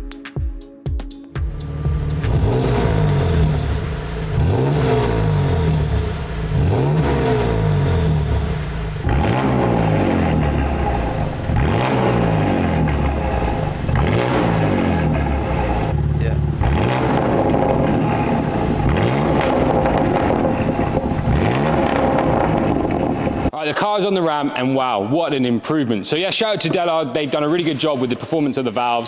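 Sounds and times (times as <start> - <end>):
car engine revving through exhaust: 1.5 - 23.5.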